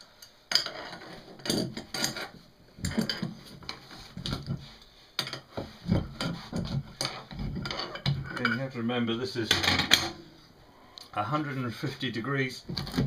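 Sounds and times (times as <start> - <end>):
metal clinks knocks and scrapes: 0.5 - 8.7.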